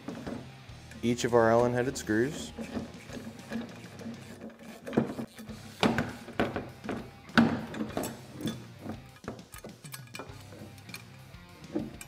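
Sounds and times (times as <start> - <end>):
tools clinking on steel bracket: 6.8 - 12.0.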